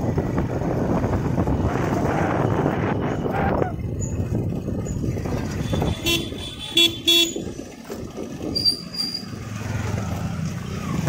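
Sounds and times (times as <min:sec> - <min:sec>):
motorcycle running: 0:00.0 - 0:11.0
vehicle horn beeps: 0:05.5 - 0:07.4.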